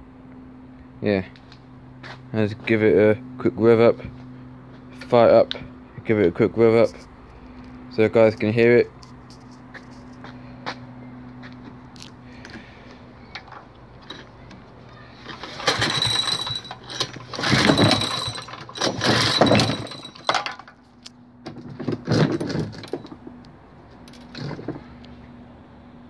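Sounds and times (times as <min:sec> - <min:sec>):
lawnmower engine cranking: 0:13.3 - 0:23.4, 0:24.0 - 0:24.9.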